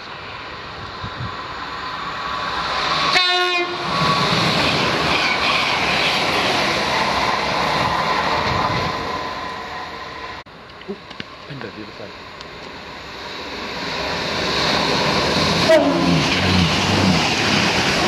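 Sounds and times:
train wheels rushing on rail: 0:00.0 - 0:18.0
train horn blast: 0:03.1 - 0:03.8, 0:15.6 - 0:16.6.

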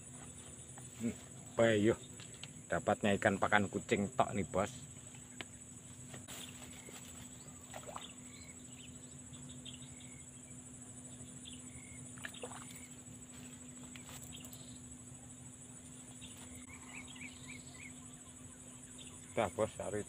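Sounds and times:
insect chorus with pulsing trill: 0:00.0 - 0:20.0
bird chirps: 0:06.3 - 0:19.8.

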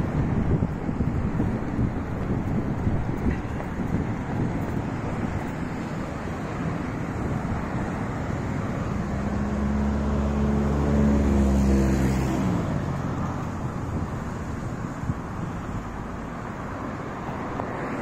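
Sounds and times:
wind on microphone: 0:00.0 - 0:18.0
motor vehicle driving past: 0:09.0 - 0:13.2.

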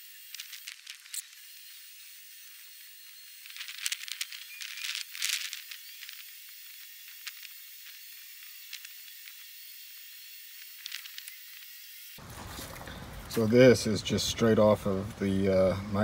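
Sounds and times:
sandpaper scratching spinning blank: 0:00.0 - 0:12.5.

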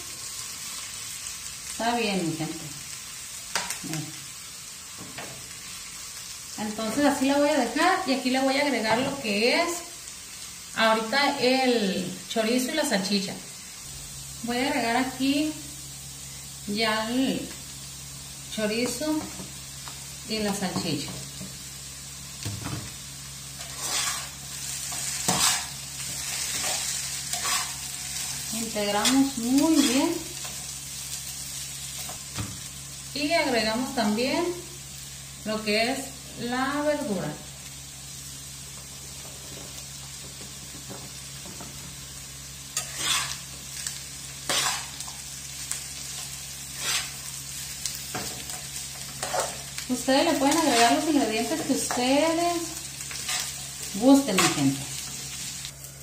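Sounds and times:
food sizzling in a frying pan: 0:00.0 - 0:56.0
spatula scraping a pan: 0:23.6 - 0:28.4, 0:42.7 - 0:43.5, 0:44.4 - 0:45.2, 0:46.2 - 0:47.2, 0:48.1 - 0:49.7, 0:50.5 - 0:52.1, 0:53.1 - 0:53.7.

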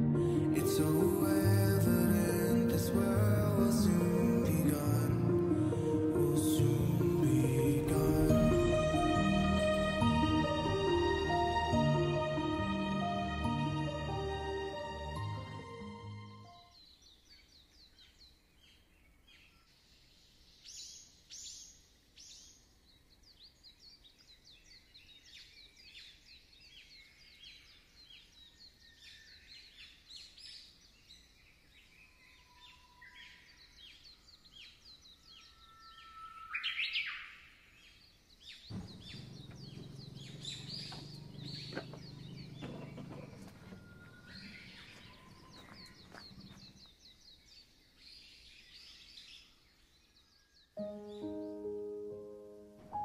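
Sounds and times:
birds chirping and calling: 0:23.2 - 0:51.7
low steady rumble: 0:38.7 - 0:44.9.

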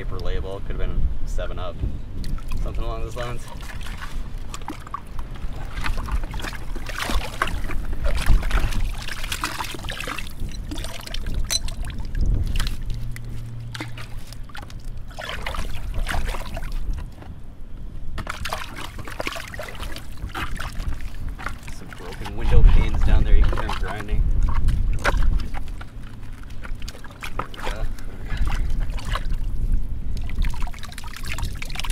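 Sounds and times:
mud and water sloshing: 0:01.5 - 0:31.9.

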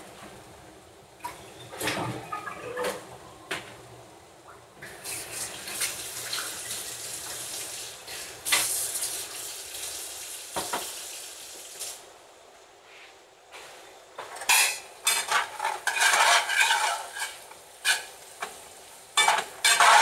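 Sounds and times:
tap running water: 0:04.8 - 0:12.0.

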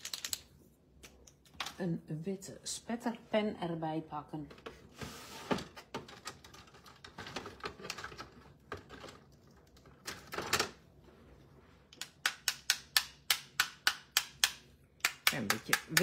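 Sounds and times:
marker tapping against plastic ruler: 0:12.0 - 0:16.0.

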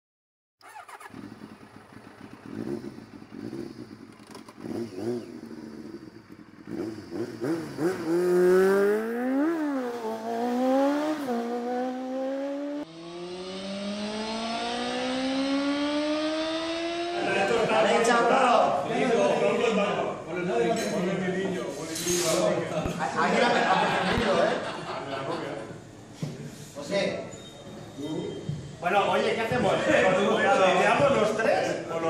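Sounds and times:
motorcycle engine revving: 0:00.6 - 0:18.2.

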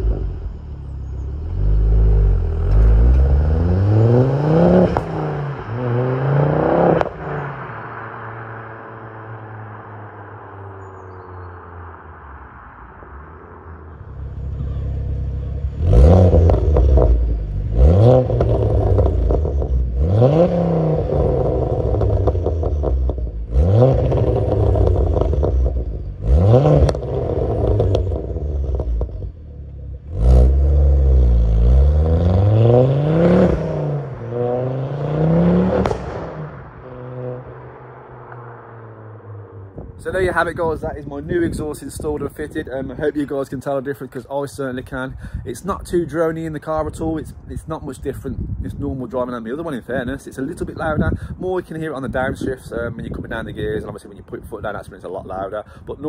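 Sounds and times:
exhaust crack: 0:00.0 - 0:10.9, 0:11.7 - 0:56.0
car engine revving hard: 0:01.5 - 0:09.1, 0:15.7 - 0:29.2, 0:30.0 - 0:38.1.

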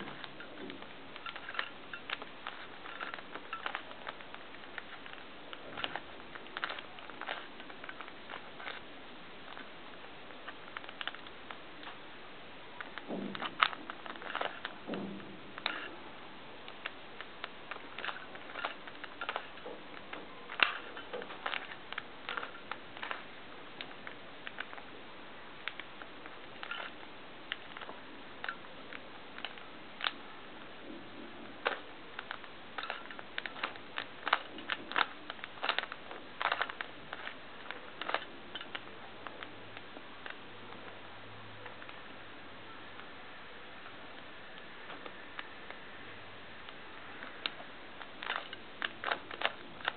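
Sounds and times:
puzzle cube clicking as turned: 0:00.0 - 0:08.9, 0:10.3 - 0:12.0, 0:12.8 - 0:16.0, 0:16.6 - 0:24.9, 0:25.6 - 0:30.2, 0:31.5 - 0:40.9, 0:46.6 - 0:49.9.

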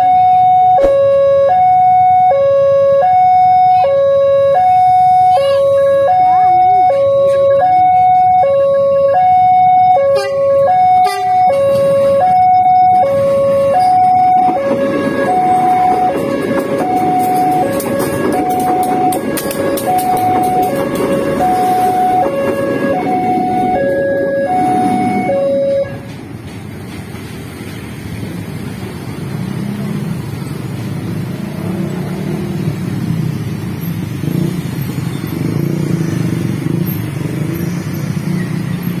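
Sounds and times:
level-crossing two-tone alarm: 0:00.0 - 0:26.1
motorcycle and scooter engines: 0:00.0 - 0:39.0
diesel train rumbling past: 0:05.8 - 0:39.0.

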